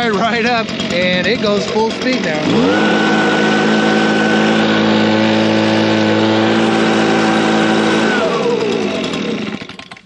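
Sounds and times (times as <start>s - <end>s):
leaf blower engine at full throttle: 0.0s - 10.0s.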